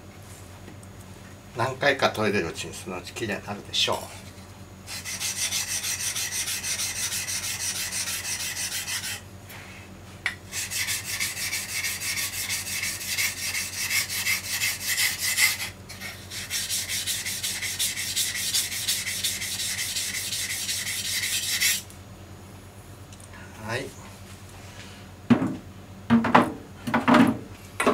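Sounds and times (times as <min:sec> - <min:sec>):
knife scraping on whetstone: 0:04.1 - 0:09.2, 0:10.5 - 0:21.9.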